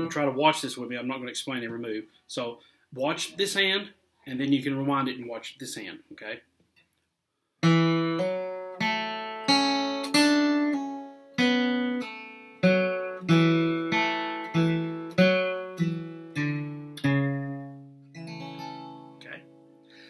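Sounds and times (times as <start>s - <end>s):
acoustic guitar flatpicked slowly: 7.6s - 20.0s.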